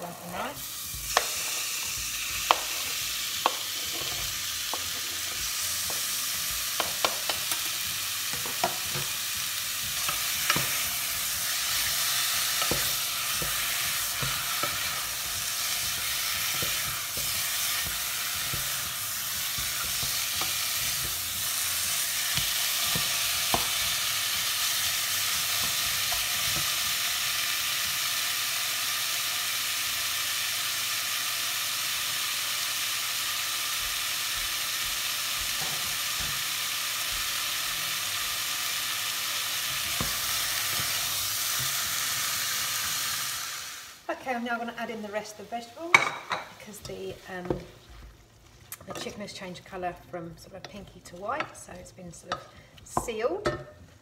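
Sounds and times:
chicken sizzling in a saucepan: 0:00.0 - 0:54.0
wooden spoon knocking on pan: 0:06.7 - 0:07.6, 0:08.3 - 0:09.2.

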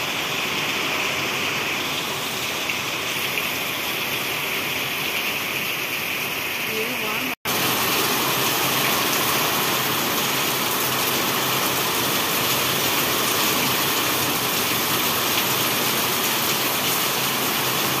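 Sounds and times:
heavy rain on concrete: 0:00.0 - 0:18.0.

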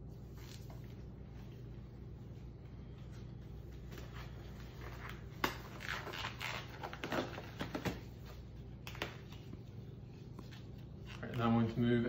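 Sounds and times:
low steady hum: 0:00.0 - 0:12.0
gloves crinkling and snapping: 0:03.8 - 0:11.8.

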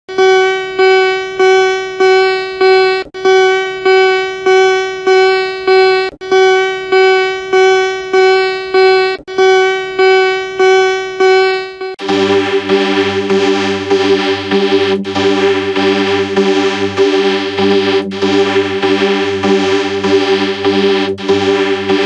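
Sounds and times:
buzzy alarm beeps: 0:00.1 - 0:12.0.

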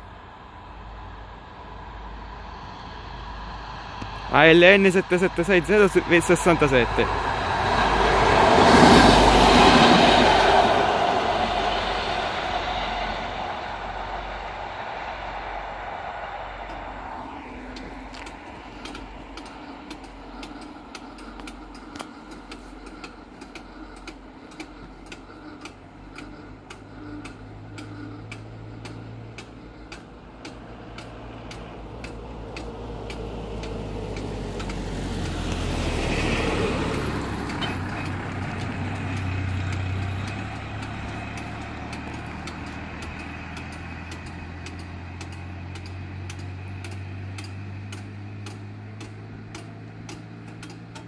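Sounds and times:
vehicle passing by: 0:00.0 - 0:51.0
steady regular ticking: 0:04.4 - 0:07.2, 0:16.7 - 0:51.0.

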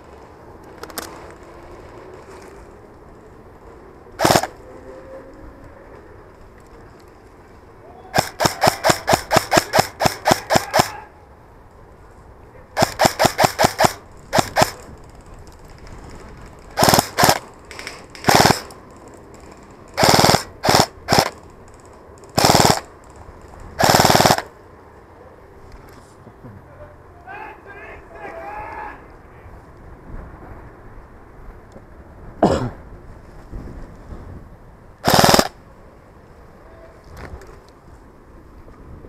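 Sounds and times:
airsoft rifle firing: 0:04.2 - 0:04.6, 0:08.2 - 0:11.1, 0:12.8 - 0:14.9, 0:16.8 - 0:17.5, 0:18.2 - 0:18.8, 0:20.0 - 0:21.4, 0:22.4 - 0:22.9, 0:23.8 - 0:24.5, 0:35.0 - 0:35.6.

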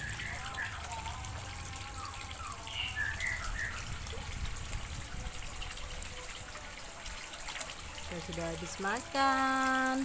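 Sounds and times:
water trickling: 0:00.0 - 0:10.0.

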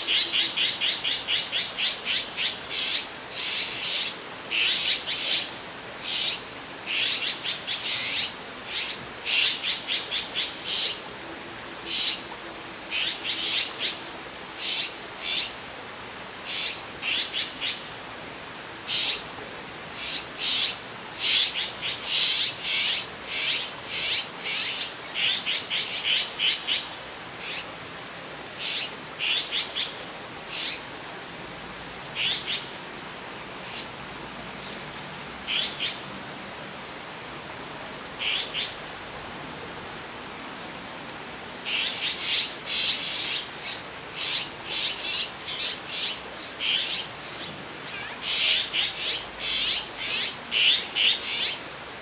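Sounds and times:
fledglings begging calls: 0:00.0 - 0:11.1, 0:11.9 - 0:12.3, 0:12.9 - 0:14.0, 0:14.6 - 0:15.6, 0:16.4 - 0:17.8, 0:18.9 - 0:19.3, 0:20.0 - 0:27.8, 0:28.6 - 0:30.9, 0:32.2 - 0:32.7, 0:33.6 - 0:34.0, 0:35.4 - 0:36.0, 0:38.2 - 0:38.8, 0:41.6 - 0:51.7.

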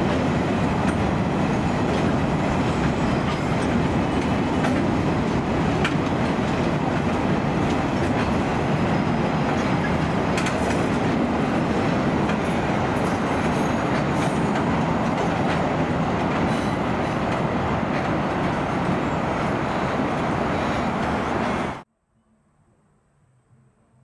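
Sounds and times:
rail clicks: 0:00.0 - 0:21.8
train wheels rumbling on rails: 0:00.0 - 0:21.8.

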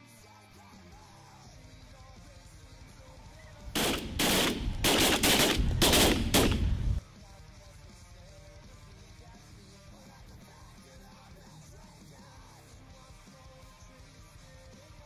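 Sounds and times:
shotgun blasts: 0:03.8 - 0:07.0.

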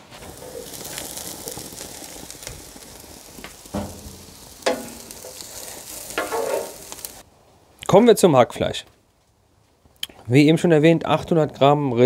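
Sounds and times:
cabbage sizzling in fat: 0:00.0 - 0:07.2.

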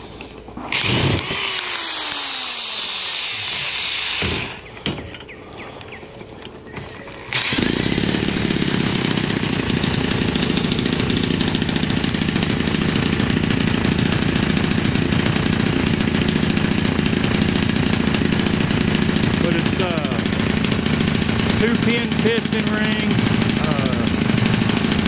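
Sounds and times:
two-stroke engine running loud: 0:07.3 - 0:25.0.

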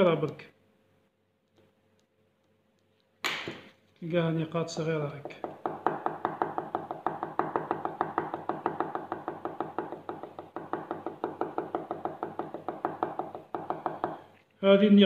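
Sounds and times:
marker tapping on paper: 0:05.1 - 0:14.2.

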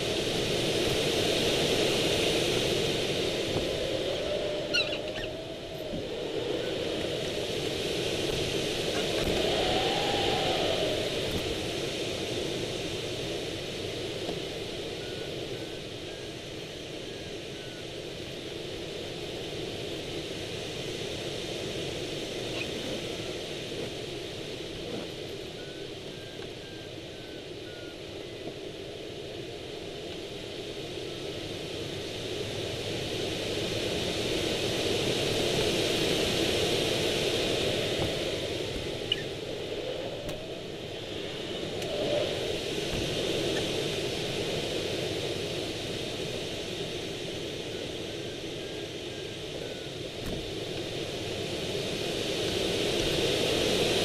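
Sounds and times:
rushing airflow: 0:00.0 - 0:13.6
variometer beeps: 0:25.5 - 0:28.0.

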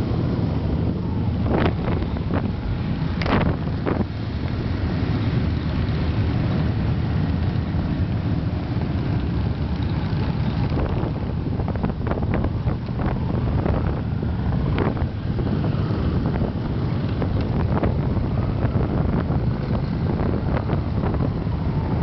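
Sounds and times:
wind buffeting microphone: 0:00.0 - 0:04.4, 0:05.2 - 0:22.0
motorcycle engines rumbling: 0:00.0 - 0:22.0.

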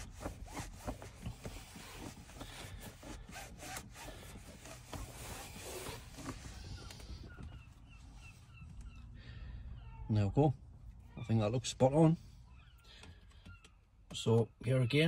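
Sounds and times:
cloth rubbing on plastic trim: 0:00.0 - 0:07.3.

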